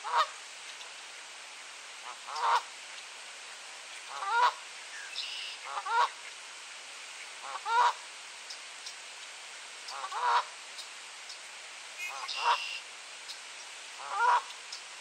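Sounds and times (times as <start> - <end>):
goose honking: 4.1 - 4.6, 5.6 - 6.2, 7.4 - 8.0, 9.9 - 10.5, 12.0 - 12.8, 14.0 - 14.5.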